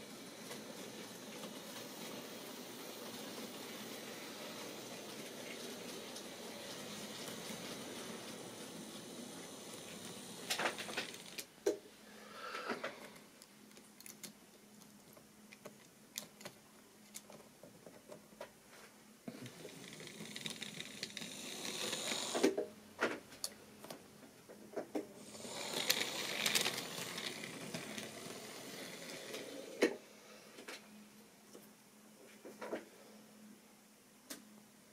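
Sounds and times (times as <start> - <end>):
small electric motor whirring: 19.5 - 22.5, 25.2 - 29.8.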